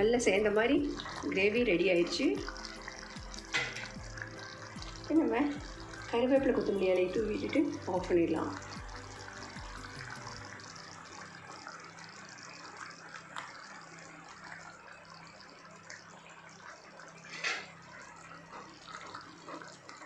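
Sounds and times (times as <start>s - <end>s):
gravy bubbling and popping: 0.0s - 20.0s.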